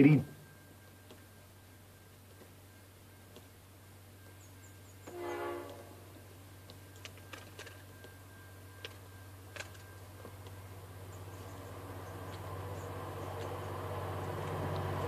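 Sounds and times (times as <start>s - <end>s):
low hum: 0.0s - 15.0s
distant train horn blast: 5.0s - 6.3s
faint clicks: 6.6s - 8.2s.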